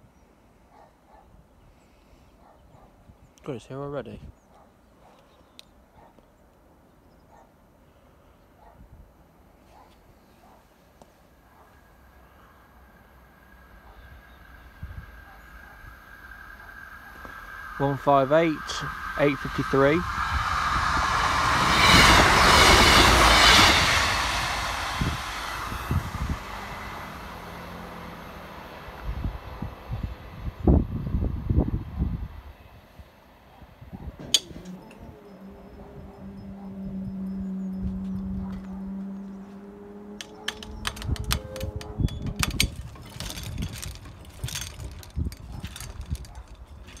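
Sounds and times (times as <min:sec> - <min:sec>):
train passing at speed: 0:10.8 - 0:47.0
barrier mechanism humming: 0:34.2 - 0:47.0
irregular clicks and knocks: 0:40.2 - 0:47.0.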